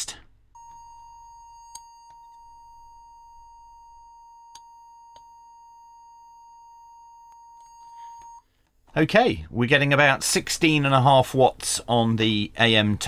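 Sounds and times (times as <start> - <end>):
steady single-pitch test tone: 0.6 - 8.4.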